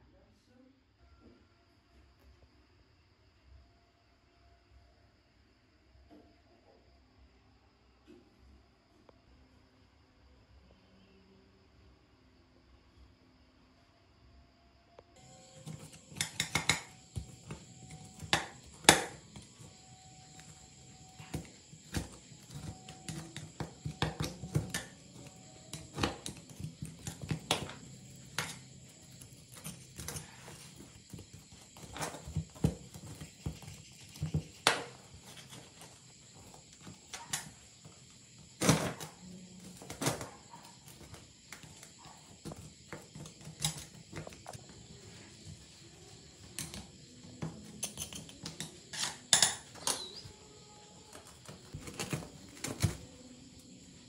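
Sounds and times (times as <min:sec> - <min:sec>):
screwdriver scraping metal: 0:15.4 - 0:38.0, 0:47.6 - 0:50.2.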